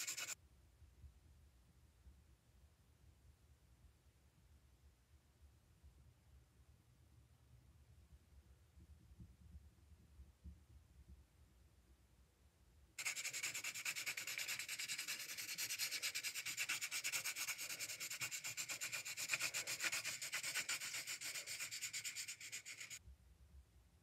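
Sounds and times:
pencil scribbling on paper: 0.0 - 0.4, 13.0 - 23.0.

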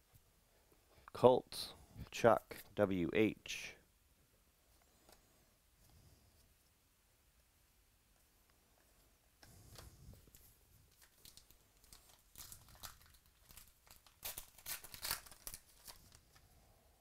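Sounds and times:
wrapper tearing and crinkling: 10.9 - 16.4.

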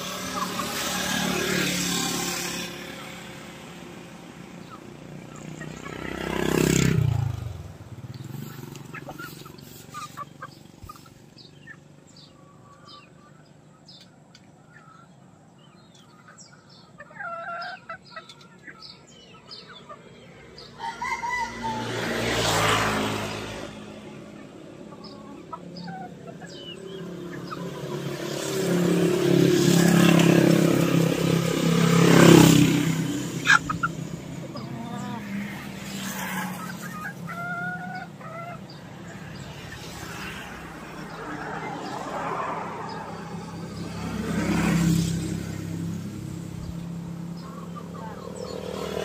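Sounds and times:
chickens clucking: 0.0 - 49.0
rooster crowing: 20.8 - 22.4.

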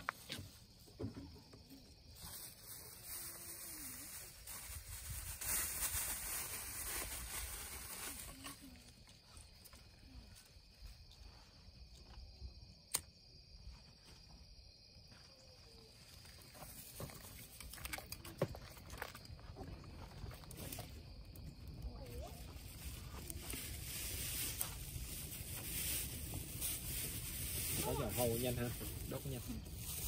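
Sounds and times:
campfire crackling: 17.0 - 30.0.

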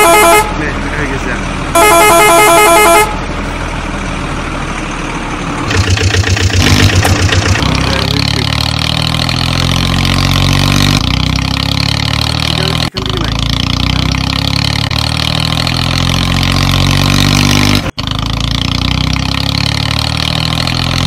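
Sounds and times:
vehicle engine starting and idling: 3.4 - 8.6.

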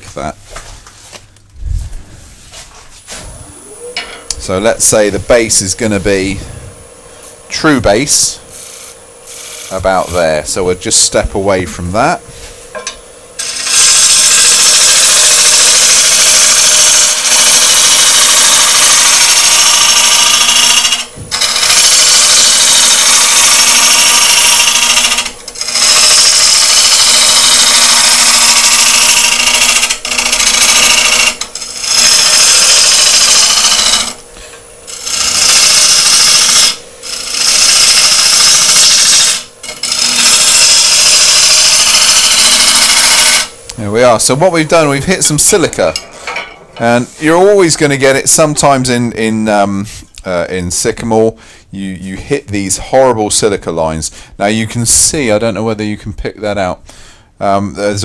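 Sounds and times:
lathe motor humming: 3.1 - 47.6
gouge cutting wood on lathe: 7.2 - 11.0, 13.4 - 43.6.

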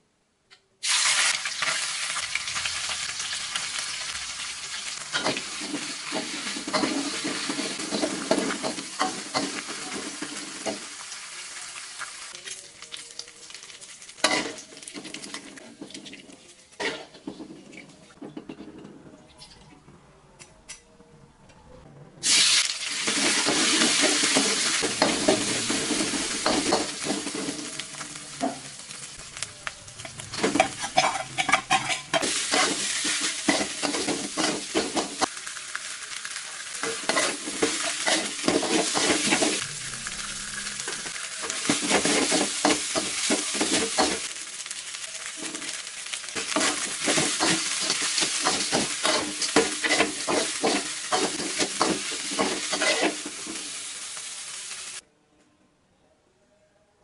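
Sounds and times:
food sizzling in hot oil: 0.8 - 16.9, 22.2 - 55.0
metal spatula scraping a wok: 30.0 - 35.1, 36.8 - 44.2, 46.4 - 53.6.

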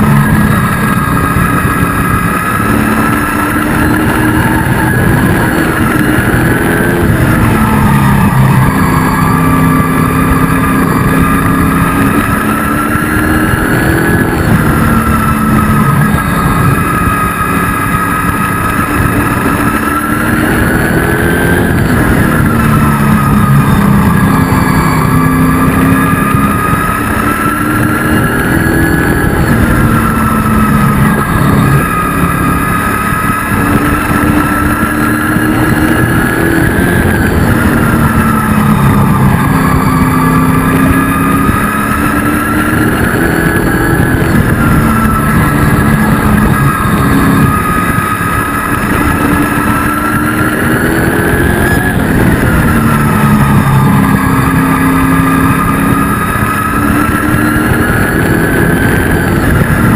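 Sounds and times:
race truck engine: 0.0 - 59.9
road noise: 0.0 - 59.9.

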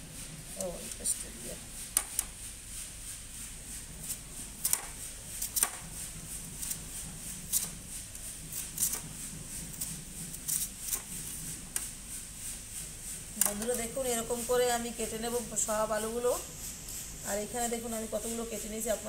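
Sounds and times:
faint steady hum: 0.0 - 19.0
potato scraping over slicer blade: 3.7 - 12.6, 13.2 - 19.0.

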